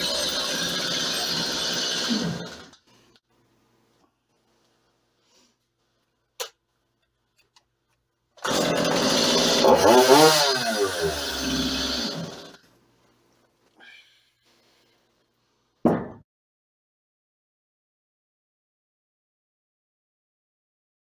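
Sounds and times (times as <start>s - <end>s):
chainsaw engine revving: 0.0s - 2.8s, 8.4s - 12.6s.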